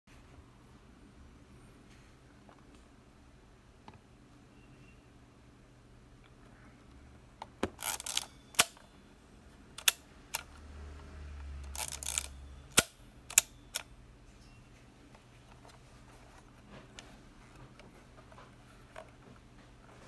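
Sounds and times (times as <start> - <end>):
film advance lever ratcheting: 7.8 - 8.8, 9.8 - 10.5, 11.6 - 13.9
mechanical clicks: 7.8 - 8.8, 9.8 - 10.5, 11.6 - 13.9.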